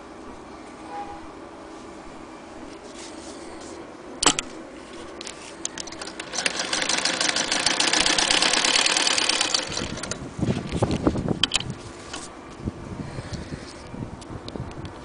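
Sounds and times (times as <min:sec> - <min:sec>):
sharp click: 0:04.2 - 0:04.6
sewing machine clattering: 0:05.8 - 0:10.2.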